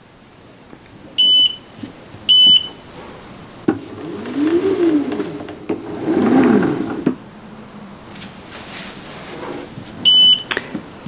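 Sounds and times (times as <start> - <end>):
motor whine: 3.7 - 7.3.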